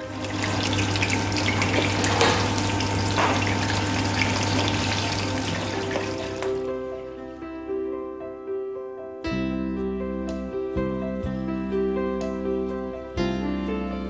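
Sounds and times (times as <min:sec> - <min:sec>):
meat sizzling in hot oil: 0:00.0 - 0:06.9.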